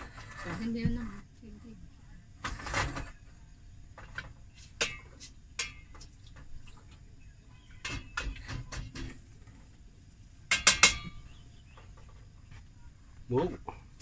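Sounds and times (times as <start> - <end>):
wooden spatula scraping steel pot: 0.0 - 1.3, 2.4 - 3.3, 4.0 - 6.9.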